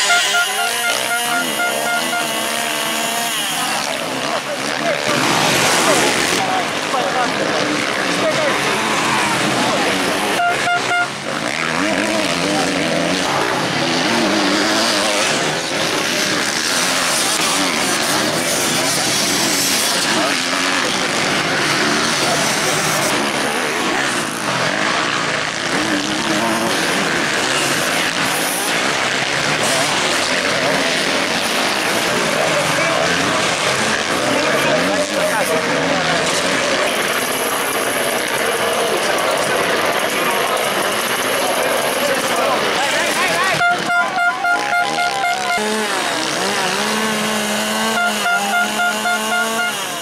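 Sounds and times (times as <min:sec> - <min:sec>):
horn tooting: 0:00.0 - 0:06.6, 0:08.1 - 0:13.2, 0:43.0 - 0:50.0
dirt bike engines revving: 0:00.0 - 0:50.0.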